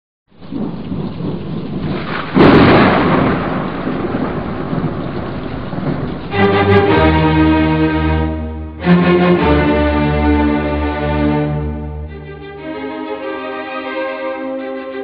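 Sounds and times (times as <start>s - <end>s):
rain hiss: 0.3s - 10.0s
thunder rumble: 0.3s - 13.3s
low bowed string chord: 6.3s - 15.0s.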